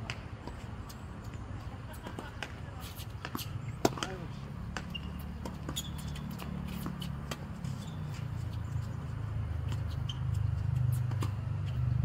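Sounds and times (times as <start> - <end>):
tennis ball hitting rackets: 1.9 - 12.0
shoe squeak: 4.7 - 12.0.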